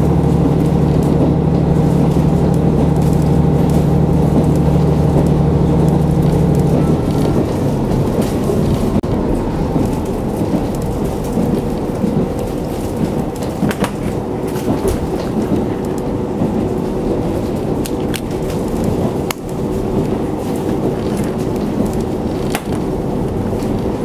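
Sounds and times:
railcar engine and wheels rumbling: 0.0 - 24.0.

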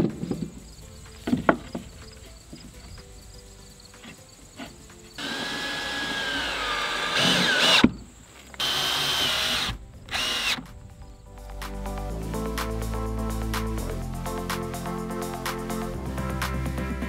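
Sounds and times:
background music: 0.0 - 17.0
power drill driving screws: 5.2 - 7.9, 8.6 - 10.6.

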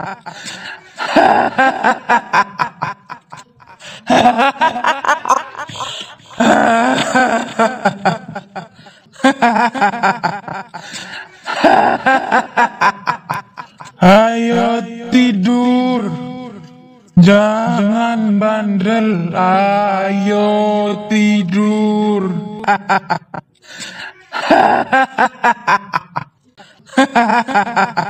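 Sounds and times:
woman cackling laugh: 1.0 - 10.8.

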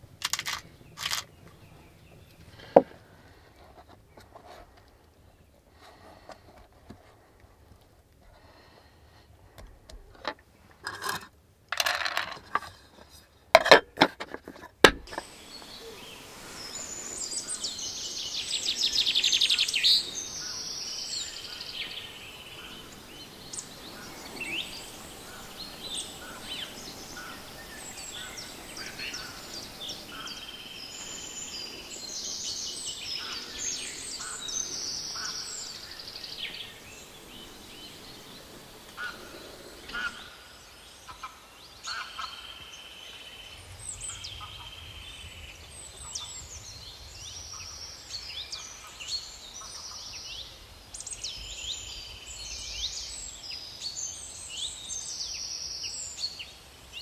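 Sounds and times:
birds chirping: 0.0 - 6.6, 11.8 - 57.0
bird trill: 15.1 - 40.5.

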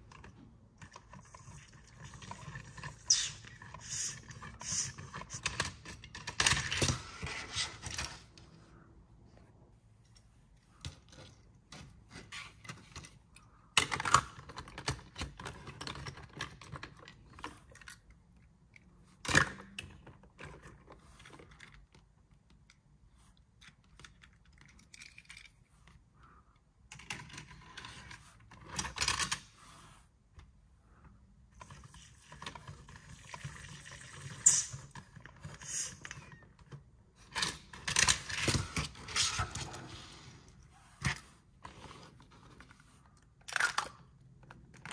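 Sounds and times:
toy cars clicking and rattling: 23.6 - 25.7.

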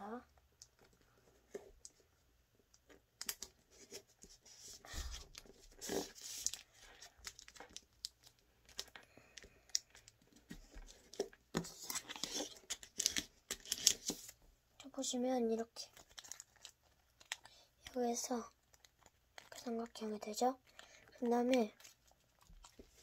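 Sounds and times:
paper rustling and crinkling: 3.2 - 9.1, 9.7 - 14.4, 15.9 - 18.0.

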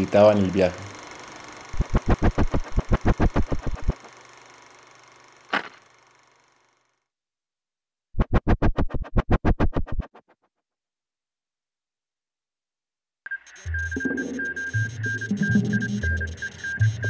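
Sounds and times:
rapid sharp hits: 1.7 - 4.0.

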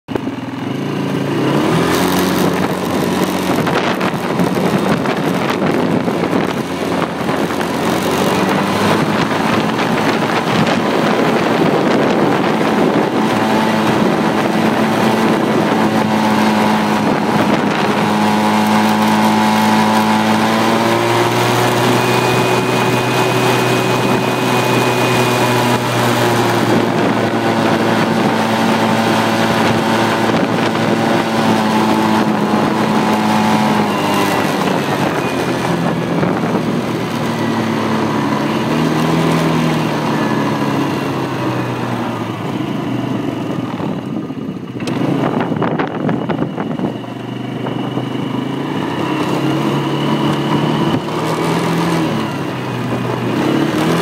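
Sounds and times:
atv engine running: 0.1 - 54.0
wind gusts on microphone: 0.8 - 54.0.

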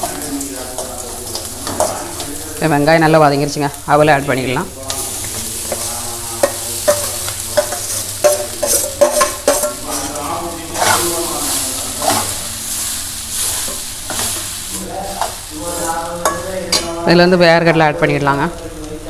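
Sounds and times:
oil sizzling: 0.0 - 19.0
metal spoon scraping a pan: 4.9 - 17.1.

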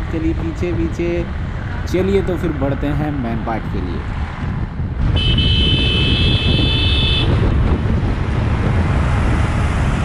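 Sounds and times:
wind on microphone: 3.4 - 10.0
vehicle horn: 5.1 - 7.4.

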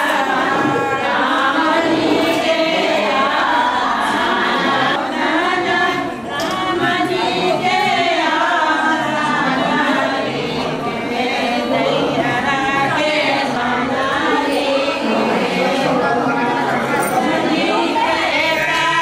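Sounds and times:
group of voices singing: 0.0 - 19.0.

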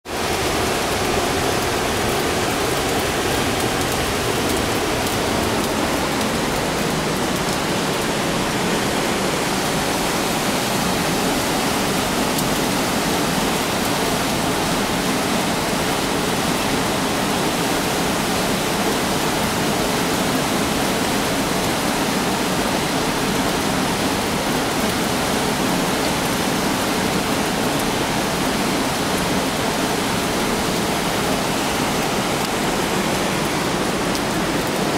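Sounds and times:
river rushing over rapids: 0.1 - 34.9.

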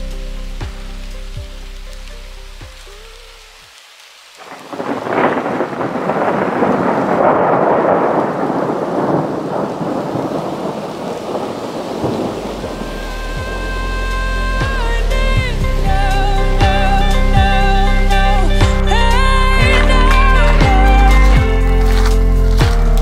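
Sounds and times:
background music: 0.0 - 3.7, 11.9 - 23.0
heavy rain falling: 0.0 - 23.0.

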